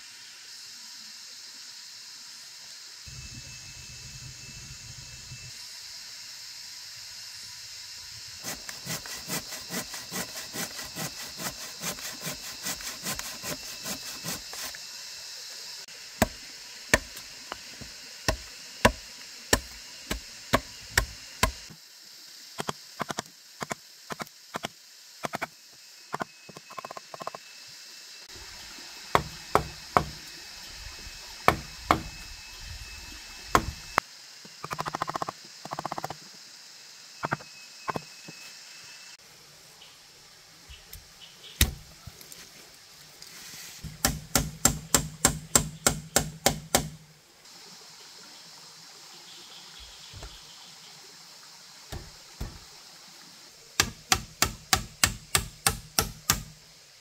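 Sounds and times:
tool striking wood: 0:16.2 - 0:21.6, 0:29.1 - 0:30.2, 0:31.5 - 0:32.2, 0:33.5 - 0:33.8, 0:43.8 - 0:47.0, 0:51.9 - 0:52.6, 0:53.8 - 0:56.6.

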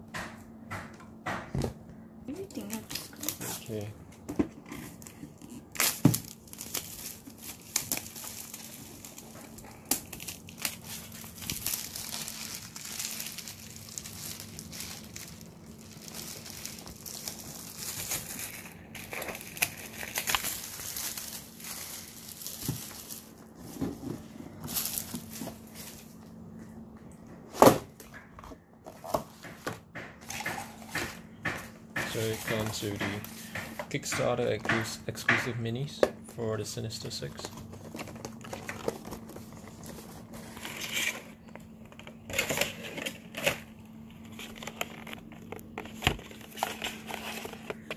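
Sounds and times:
plastic shrink wrap crinkling: 0:04.8 - 0:26.5, 0:37.3 - 0:47.9.

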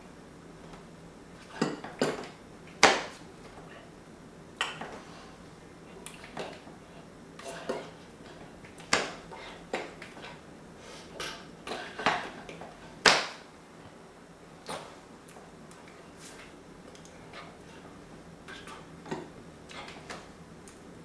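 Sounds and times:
hands slapping and tapping: 0:08.7 - 0:10.2, 0:13.0 - 0:13.4.

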